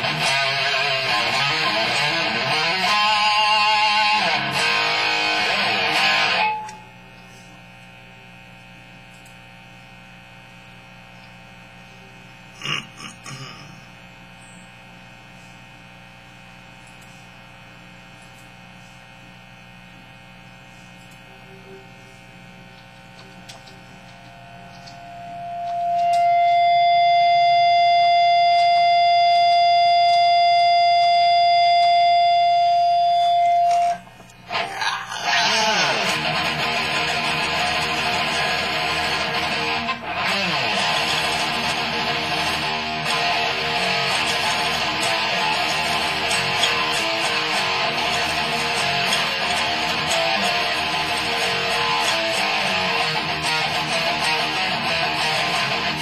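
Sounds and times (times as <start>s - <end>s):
plucked guitar note: 0.0s - 6.9s, 33.0s - 56.0s
sustained high guitar note: 0.0s - 7.0s, 25.1s - 56.0s
distorted electric guitar: 0.0s - 8.5s, 9.5s - 14.4s, 21.1s - 56.0s
low amp hum: 0.0s - 56.0s.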